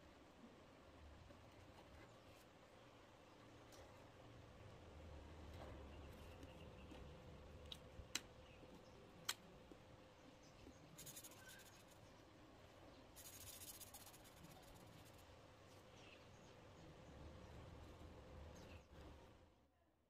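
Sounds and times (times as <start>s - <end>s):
marker scribbling on paper: 11.0s - 12.0s, 13.2s - 15.2s.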